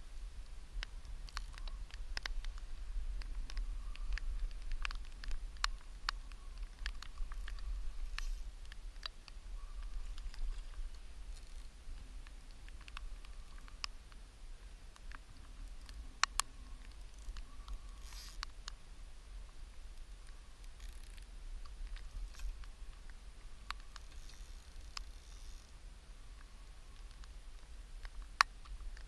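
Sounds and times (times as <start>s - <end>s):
faint clicks and taps: 0.8s - 14.2s, 14.9s - 18.8s.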